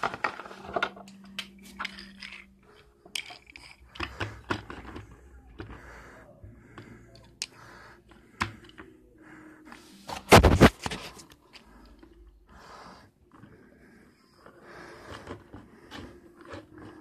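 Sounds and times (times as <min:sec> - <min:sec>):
wooden toy clicks and knocks: 0:00.0 - 0:05.8
toy scraping and rattling: 0:00.0 - 0:06.2, 0:13.0 - 0:17.0.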